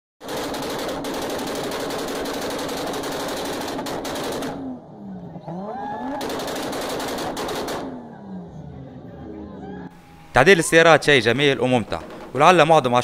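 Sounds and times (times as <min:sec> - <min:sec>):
engine tone falling and rising: 0:04.4 - 0:10.9.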